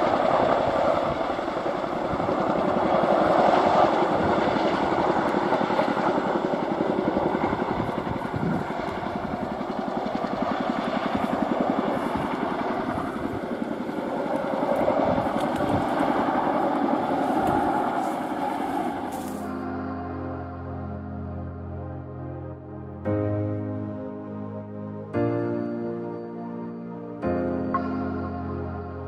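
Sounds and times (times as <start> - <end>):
helicopter rotors chopping: 0.0 - 19.8
helicopter turbine engines: 0.0 - 29.0.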